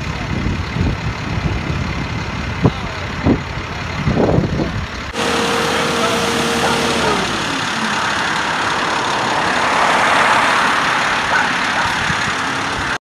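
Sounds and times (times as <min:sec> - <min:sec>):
heavy machinery engine: 0:00.0 - 0:13.0
falling tone: 0:05.2 - 0:08.7.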